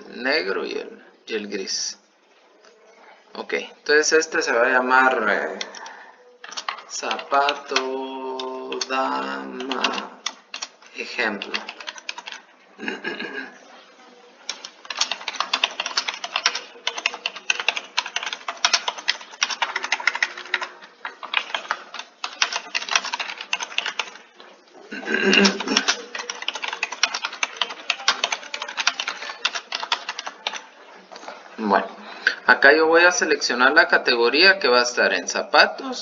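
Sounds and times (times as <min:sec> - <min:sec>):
typing on computer keyboard: 0:05.6 - 0:12.4, 0:14.5 - 0:24.3, 0:25.2 - 0:30.7.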